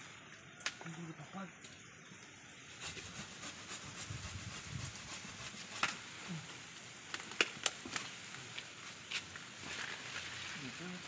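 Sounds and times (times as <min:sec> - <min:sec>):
hand saw cutting branch: 0:02.7 - 0:06.0.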